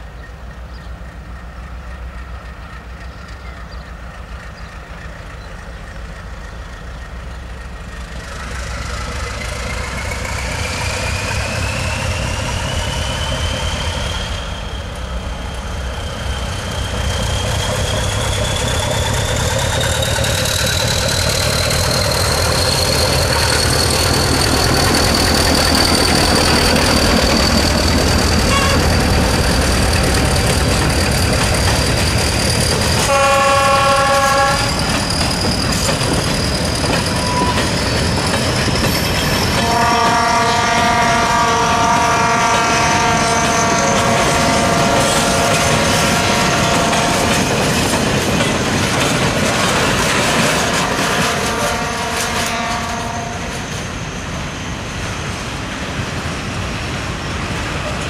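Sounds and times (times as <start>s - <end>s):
diesel locomotive engine: 0.0s - 58.0s.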